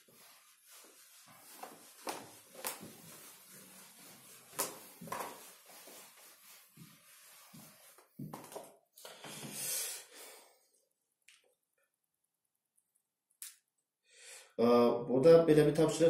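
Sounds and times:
eraser swishing on whiteboard: 0.0 - 8.3.

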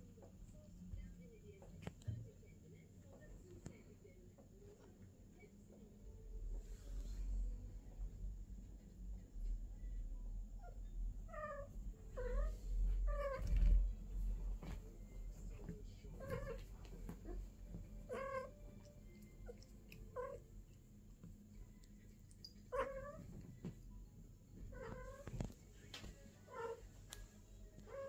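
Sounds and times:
cat yowling: 16.2 - 16.6, 18.0 - 18.7, 19.4 - 20.4, 22.6 - 23.4, 24.7 - 25.3, 26.5 - 26.8.

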